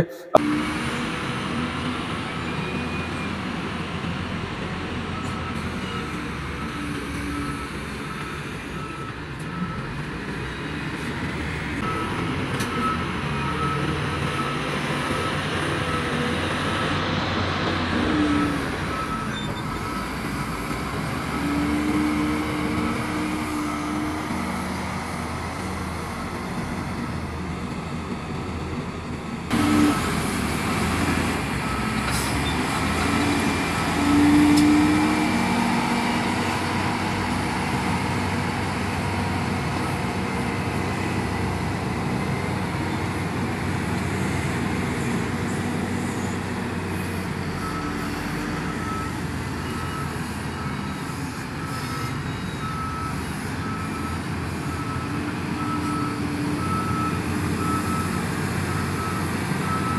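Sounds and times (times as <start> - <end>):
diesel engines droning: 0.0 - 59.9
reversing alarm beeping: 17.9 - 24.4, 29.5 - 36.4, 47.4 - 59.9.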